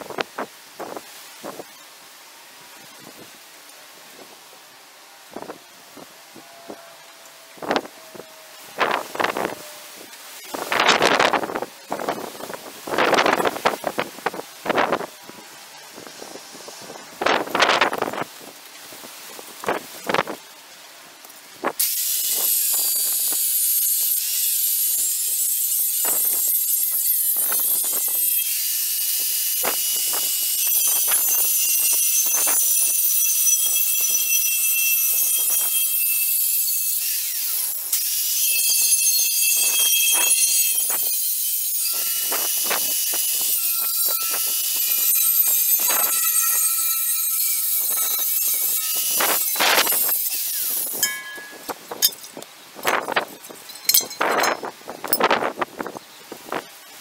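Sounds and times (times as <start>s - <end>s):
angle grinder cutting steel: 21.8s - 52.4s.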